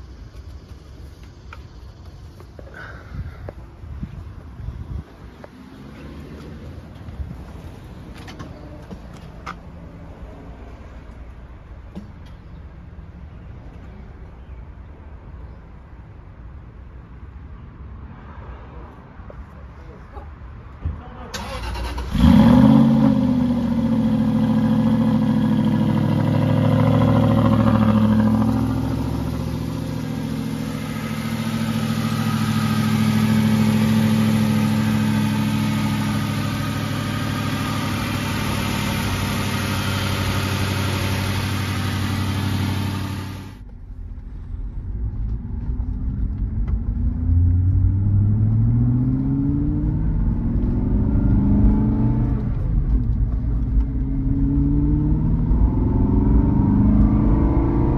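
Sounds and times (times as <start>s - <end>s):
car engine accelerating through gears: 21.4s - 43.6s, 44.8s - 57.9s
car engine idling fast: 23.6s - 43.6s.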